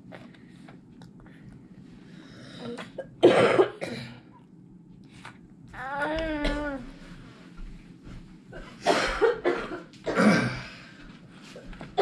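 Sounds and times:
person coughing: 2.7 - 4.3, 8.6 - 10.8.

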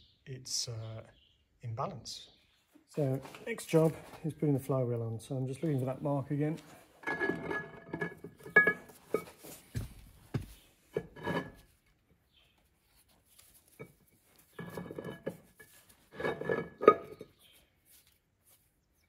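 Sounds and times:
metal knocks and clinks: 7.0 - 9.4, 16.2 - 17.3.

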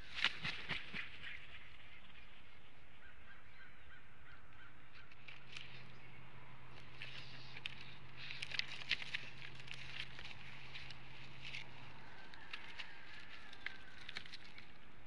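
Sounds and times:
sticks crackling and snapping: 6.7 - 15.0.

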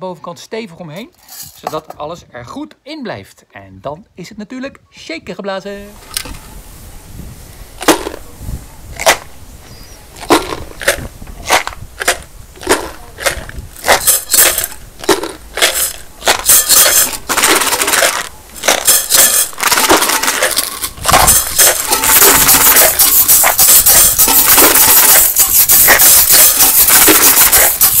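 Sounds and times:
shakers rattling: 10.2 - 28.0.

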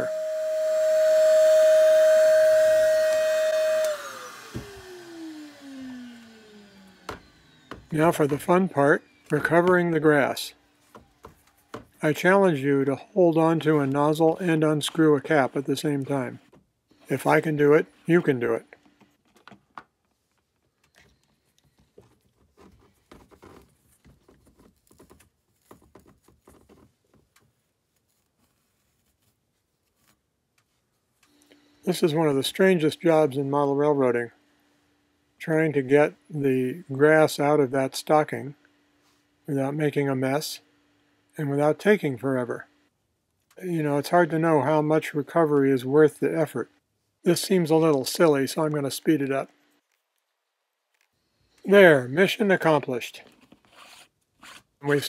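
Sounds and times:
vacuum cleaner whine: 0.0 - 10.6
soft rustling: 20.1 - 31.2.

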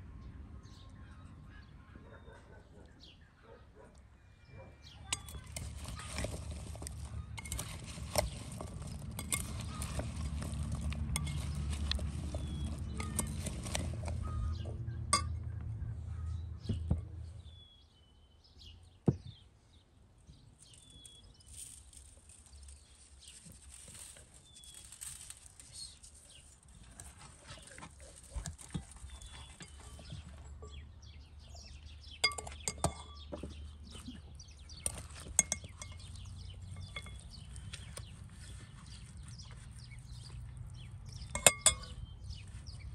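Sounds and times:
birds chirping: 0.2 - 42.9
spoon scraping in glass bowl: 5.1 - 15.4, 34.7 - 37.9, 41.1 - 42.0.

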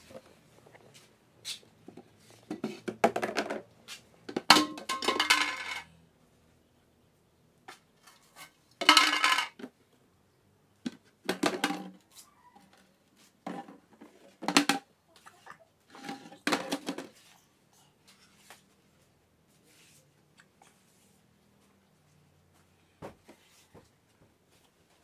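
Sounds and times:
metallic clatter of tin: 4.5 - 5.9, 8.8 - 9.6.

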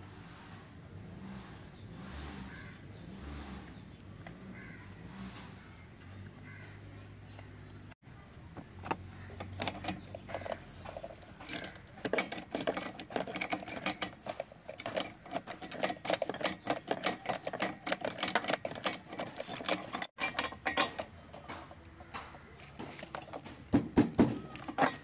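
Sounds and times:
spanner clicking and rattling on metal: 8.8 - 25.0.

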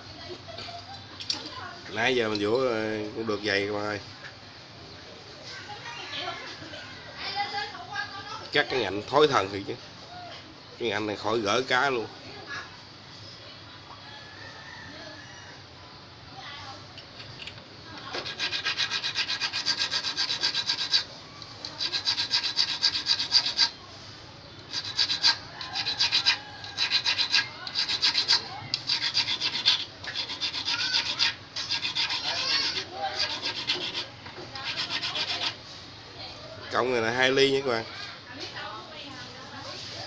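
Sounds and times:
needle file rasping on steel hook: 18.1 - 23.8, 24.7 - 35.6.

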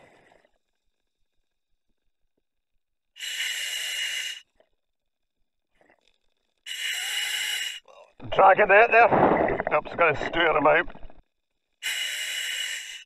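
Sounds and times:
diver breathing through regulator: 3.2 - 4.6, 6.7 - 8.0, 11.8 - 13.0.

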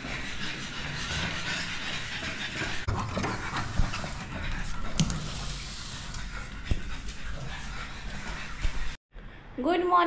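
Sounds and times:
dogs panting: 0.0 - 9.0
footsteps on tiles: 2.0 - 9.0.

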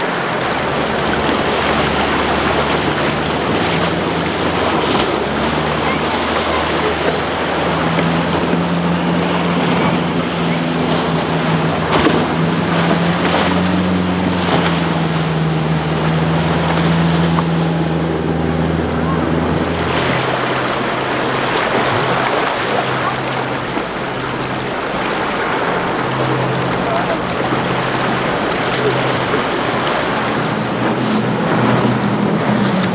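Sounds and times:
boat engine drone: 0.0 - 32.9
hull rushing through waves: 0.0 - 32.9.

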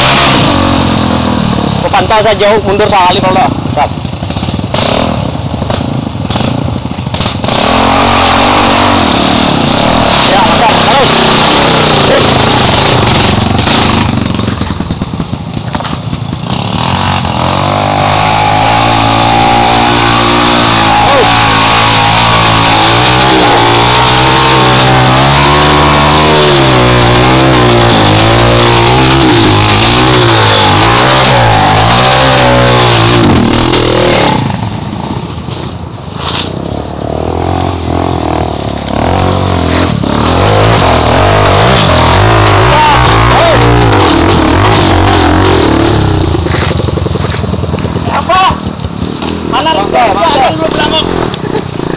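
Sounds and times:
motorcycle engine revving: 0.0 - 51.9.

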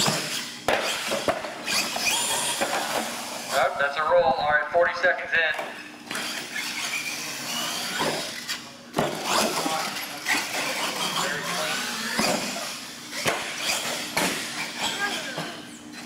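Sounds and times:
toy truck bumping and landing: 0.0 - 3.1
electric motor whining: 0.0 - 3.6, 6.0 - 16.0.

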